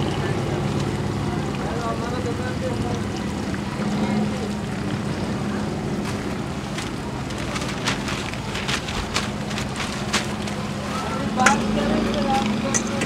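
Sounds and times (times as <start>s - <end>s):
ladles clicking against metal woks: 6.0s - 13.0s.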